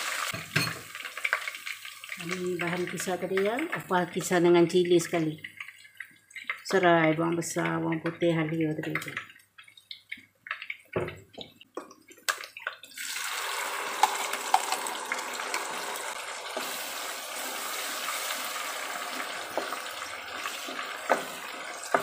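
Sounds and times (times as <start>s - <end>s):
paste sizzling in hot oil: 0.0s - 3.4s, 12.9s - 22.0s
wooden spatula stirring: 16.6s - 22.0s.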